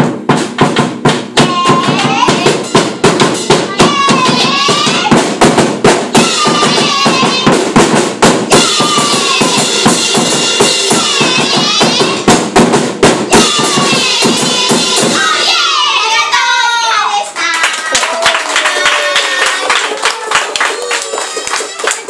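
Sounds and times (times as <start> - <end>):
drum kit with cymbals: 0.0 - 15.5
women singing and shouting: 1.4 - 2.6, 3.6 - 5.2, 6.2 - 7.6, 8.5 - 9.9, 10.6 - 12.3, 13.3 - 17.8.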